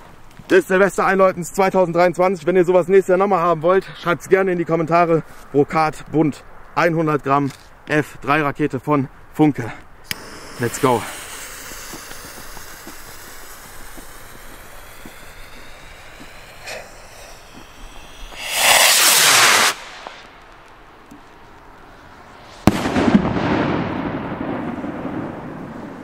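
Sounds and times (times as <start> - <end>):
firework rocket hissing: 10.0 - 21.0, 22.1 - 24.2
firework bang: 10.1 - 20.4, 22.5 - 26.0
loud rushing burst: 10.1 - 20.5, 22.3 - 24.7.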